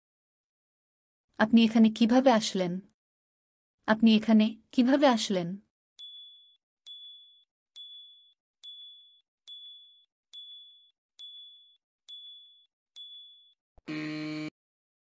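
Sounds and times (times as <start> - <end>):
electronic timer ding: 6.0 - 13.6
short buzz: 13.8 - 14.6.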